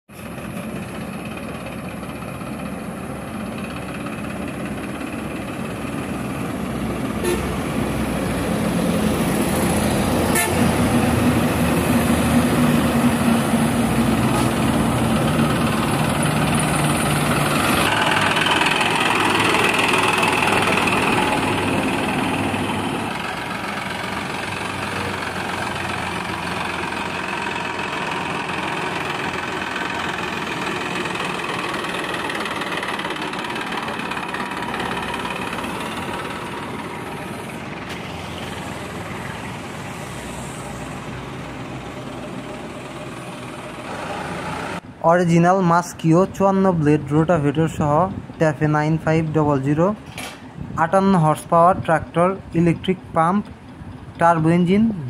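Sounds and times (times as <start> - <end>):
road traffic: 0.1 - 55.0
tractor diesel engine: 0.1 - 55.0
horn toots: 7.2 - 7.6, 10.3 - 10.8.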